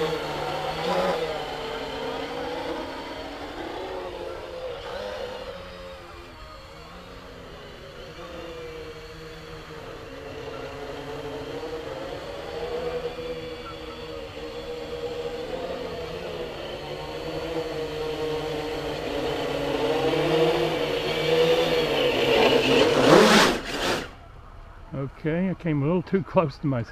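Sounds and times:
quadcopter propellers whirring: 0.0 - 24.9.

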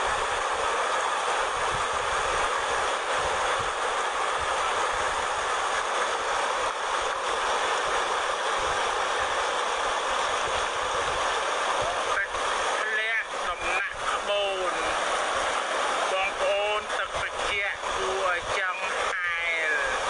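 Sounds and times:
river water rushing: 0.0 - 20.0
wind rumble on microphone: 1.4 - 5.6.

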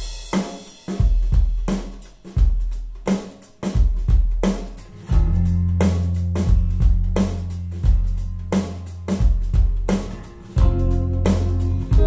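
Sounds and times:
rock song through speakers: 3.1 - 12.0.

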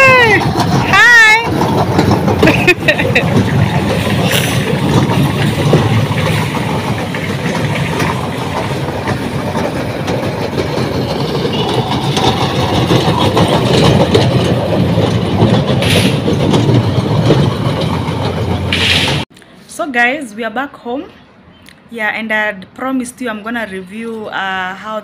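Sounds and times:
small train cars rolling on steel track: 0.0 - 19.3.

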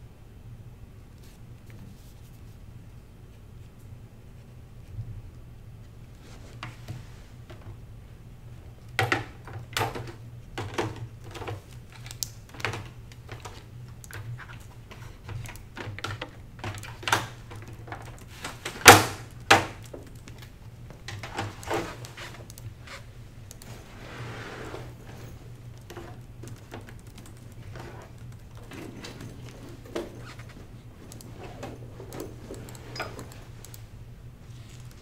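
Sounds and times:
steady low hum: 0.0 - 35.0
lectern stand being folded: 8.9 - 33.8
gear handled on a desk: 8.9 - 33.9.

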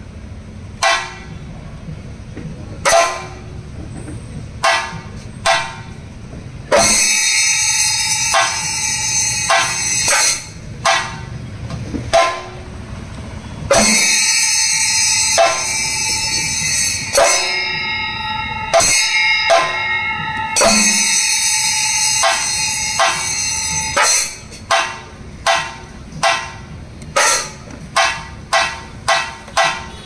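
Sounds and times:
drums struck with sticks: 0.8 - 30.0
ringing hand cymbals: 4.6 - 11.6, 12.2 - 30.0.

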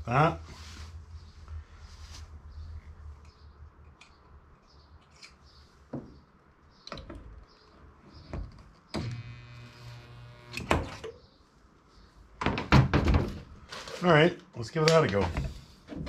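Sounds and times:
stud welder electric hum: 9.0 - 11.0.

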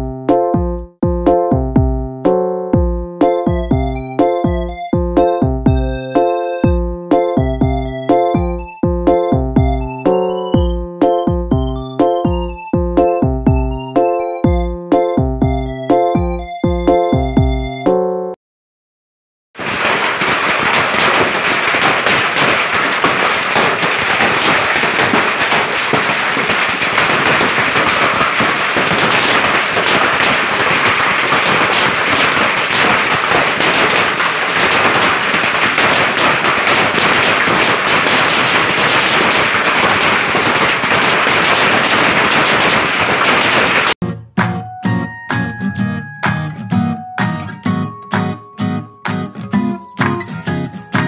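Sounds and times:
hailstones clattering: 19.6 - 44.0.

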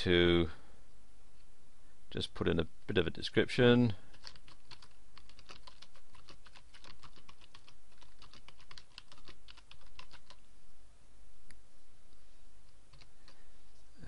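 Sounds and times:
keyboard typing: 4.1 - 10.4, 12.9 - 13.4.

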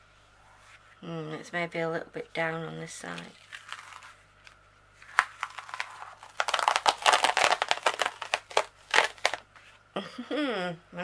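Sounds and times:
canvas crinkling and crackling: 5.2 - 9.4.

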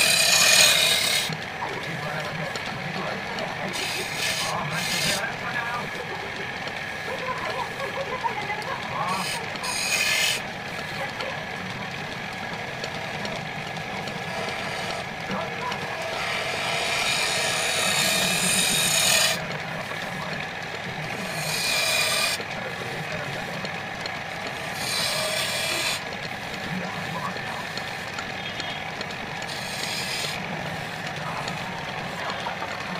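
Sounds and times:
turning tool scraping wood: 0.0 - 6.8, 9.0 - 11.2, 12.8 - 32.9
wood lathe humming: 0.0 - 32.9.

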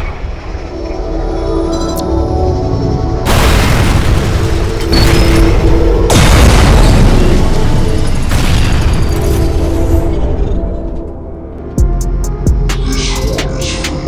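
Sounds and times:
dramatic cinematic music: 0.0 - 14.0
deep rumble: 1.8 - 13.8
heavy booming impacts: 3.3 - 10.2.

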